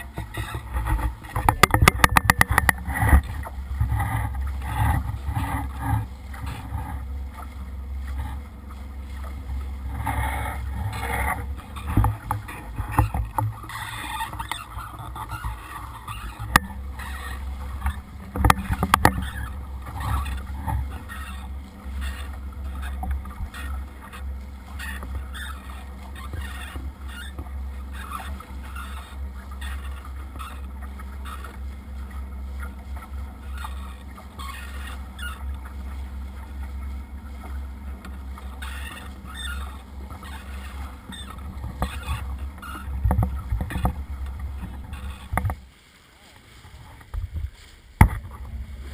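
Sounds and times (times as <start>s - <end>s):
low engine rumble: 0.0s - 48.9s
water rushing at boat bow: 0.0s - 48.9s.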